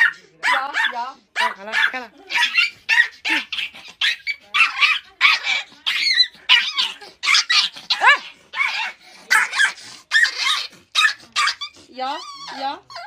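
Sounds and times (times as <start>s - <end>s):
puppy yapping: 0.0s - 13.0s.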